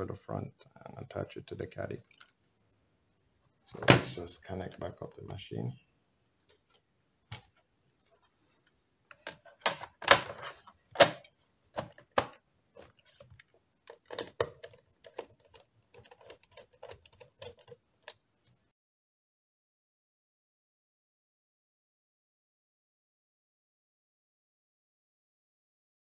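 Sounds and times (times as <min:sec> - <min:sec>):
plastic laptop parts clicking: 0:13.2 - 0:18.2.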